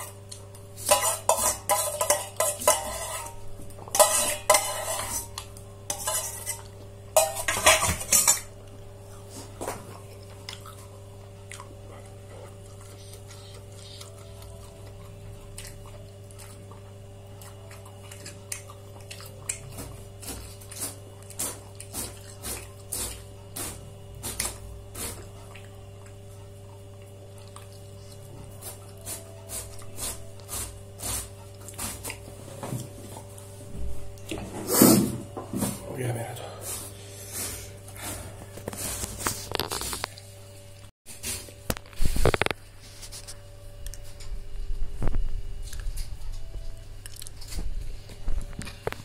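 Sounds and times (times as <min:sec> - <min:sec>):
steady hum: 0:00.0 - 0:49.0
dishes and utensils clinking: 0:00.8 - 0:08.6
dishes clattering: 0:00.8 - 0:08.6.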